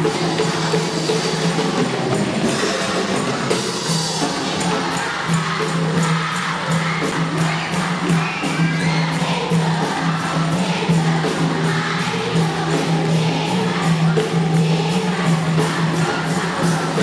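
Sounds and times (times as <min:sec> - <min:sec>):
crowd singing a cheer song: 0:00.0 - 0:17.0.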